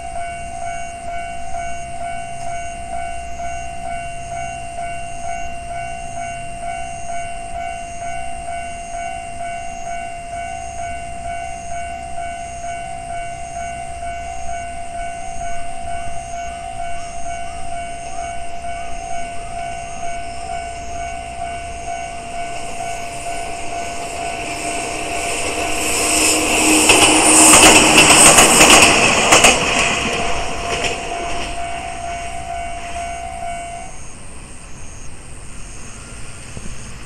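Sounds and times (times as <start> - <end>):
crossing warning bell ringing: 0.0 - 36.5
train wheels clacking over rails: 16.9 - 33.6.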